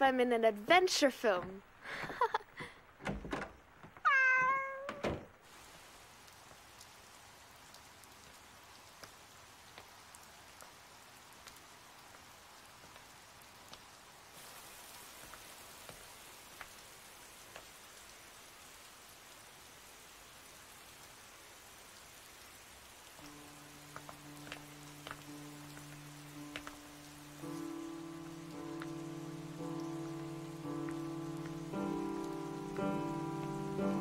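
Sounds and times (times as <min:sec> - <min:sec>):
steady rain: 0:00.0 - 0:34.0
cat meowing: 0:04.0 - 0:05.0
dripping ticks: 0:23.2 - 0:33.9.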